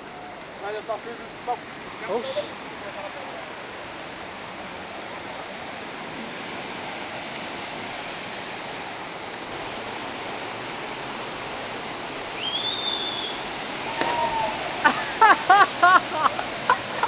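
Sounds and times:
waterfall rushing: 0:00.0 - 0:17.0
high whistle: 0:12.4 - 0:14.6.

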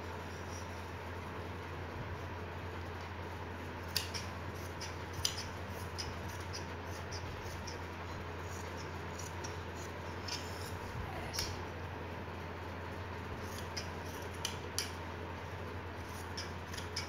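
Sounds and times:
low steady hum: 0:00.0 - 0:17.0
scissors snipping fabric: 0:03.9 - 0:07.8, 0:13.4 - 0:15.0, 0:16.0 - 0:17.0.

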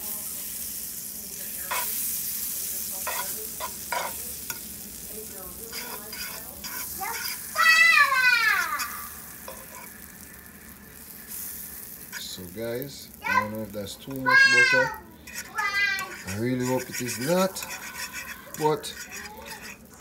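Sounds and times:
butter sizzling in a frying pan: 0:00.0 - 0:20.0
metal fork scraping a pan: 0:01.7 - 0:04.9, 0:05.6 - 0:07.5, 0:08.6 - 0:10.2, 0:11.3 - 0:12.4, 0:15.2 - 0:20.0.

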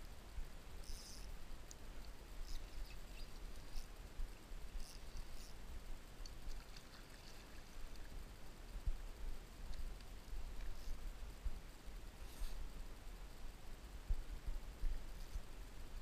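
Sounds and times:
light splashes: 0:06.2 - 0:08.2.

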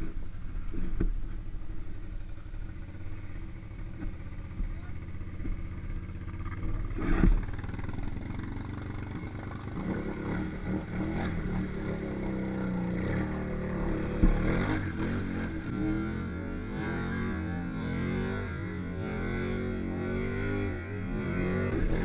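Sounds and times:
atv engines revving: 0:00.0 - 0:22.0
quad driving through muddy water: 0:04.1 - 0:16.3.

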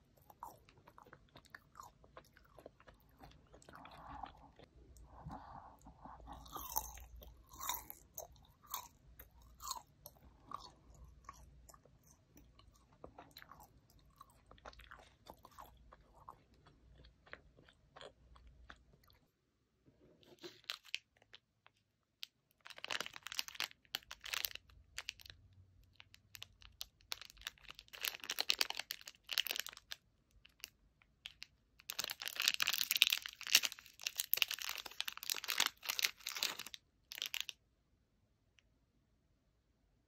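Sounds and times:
plastic packaging crinkling and tearing: 0:22.6 - 0:25.3, 0:26.3 - 0:37.5.

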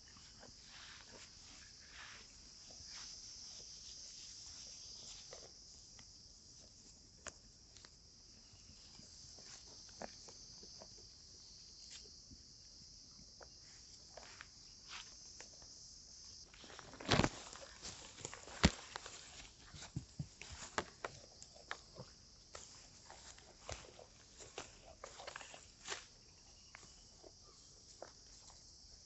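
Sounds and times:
high-pitched insect chorus: 0:00.0 - 0:29.0.

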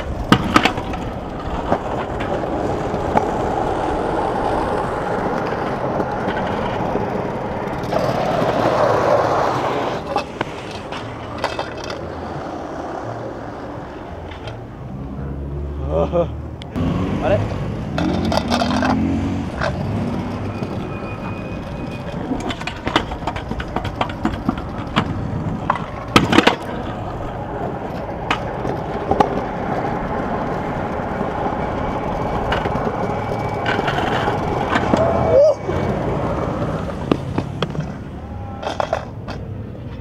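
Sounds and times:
scooter clacks and knocks: 0:00.0 - 0:03.4, 0:05.3 - 0:09.2, 0:10.0 - 0:12.1, 0:17.9 - 0:21.4, 0:22.0 - 0:35.2, 0:36.6 - 0:40.0
scooter wheels rolling on pavement: 0:00.0 - 0:40.0.

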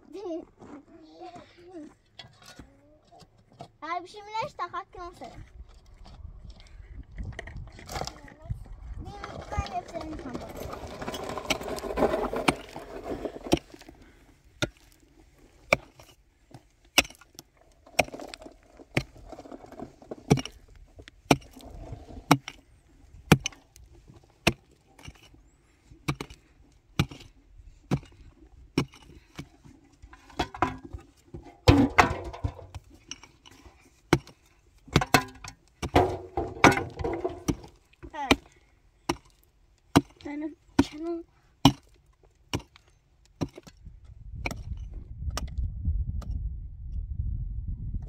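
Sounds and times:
soil and stones scraping: 0:00.0 - 0:45.5
spade striking stony ground: 0:10.0 - 0:14.0, 0:14.6 - 0:25.4, 0:26.0 - 0:43.8, 0:44.4 - 0:45.5.

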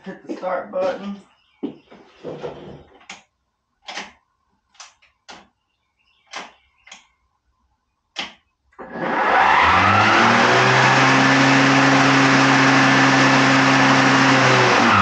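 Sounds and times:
electric lawn mower whine and hum: 0:08.8 - 0:15.0.

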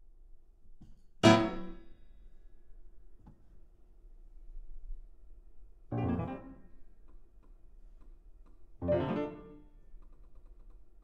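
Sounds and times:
loud piano chords: 0:05.9 - 0:06.6, 0:08.8 - 0:09.6
quiet held piano notes: 0:05.9 - 0:07.2, 0:08.7 - 0:10.7.

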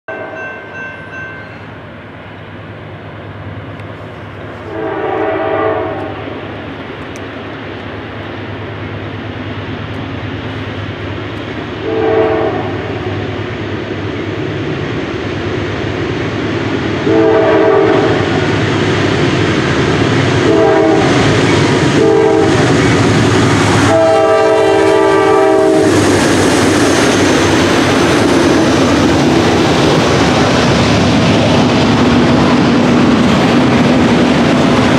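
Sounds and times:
diesel locomotive engines rumbling: 0:00.1 - 0:34.9
train wheels on rails: 0:00.1 - 0:34.9
multi-tone train air horn: 0:04.6 - 0:06.4, 0:11.8 - 0:13.0, 0:17.0 - 0:18.3, 0:20.4 - 0:21.2, 0:21.9 - 0:22.6, 0:23.8 - 0:25.9.

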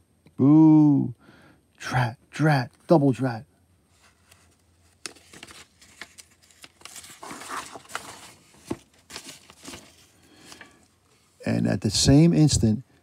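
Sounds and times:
paper page rustling: 0:03.9 - 0:11.2
clicks and taps handling book: 0:04.2 - 0:09.9.

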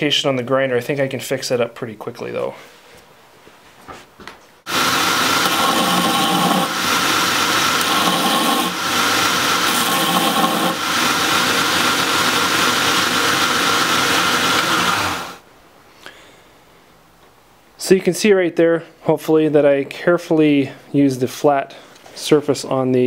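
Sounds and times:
belt grinder grinding metal: 0:04.7 - 0:15.4.

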